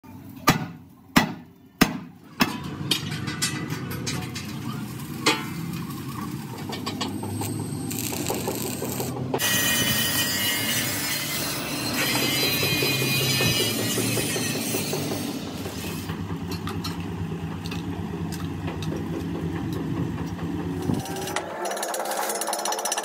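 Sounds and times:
workshop clatter: 0.0s - 23.0s
gas cutting torch hissing: 4.8s - 16.2s.

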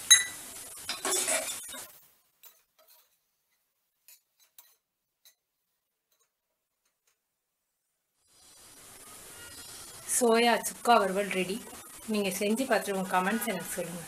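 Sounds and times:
ladle scraping metal pan: 0.1s - 3.2s.

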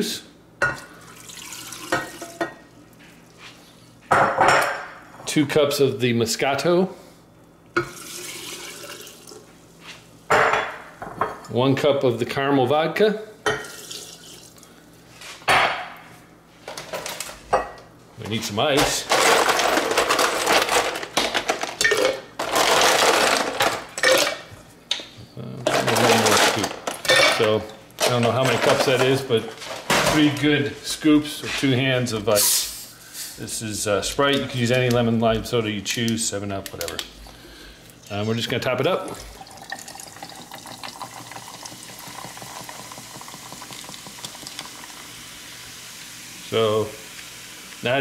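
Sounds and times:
soda pouring into pitcher: 0.9s - 2.4s, 7.8s - 9.4s, 13.6s - 14.6s, 38.1s - 47.8s
soda fizzing over ice: 7.9s - 9.4s, 13.7s - 14.6s, 39.1s - 47.9s
ice cubes clattering: 18.8s - 24.4s, 25.7s - 30.3s.

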